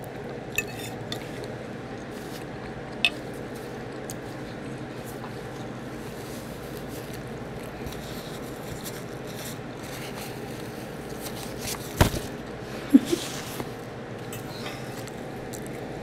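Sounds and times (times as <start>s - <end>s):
paper napkin rustling: 5.9s - 13.8s.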